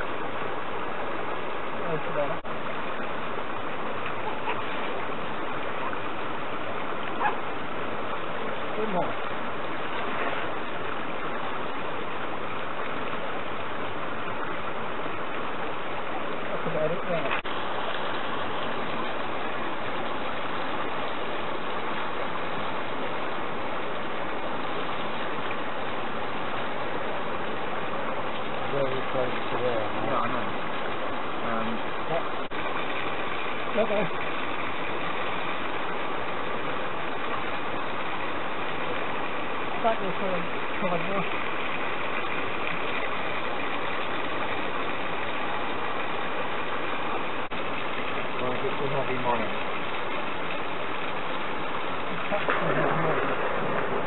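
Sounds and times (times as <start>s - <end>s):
small stream flowing: 0.0s - 54.0s
water jet spraying: 15.9s - 35.8s, 47.6s - 54.0s.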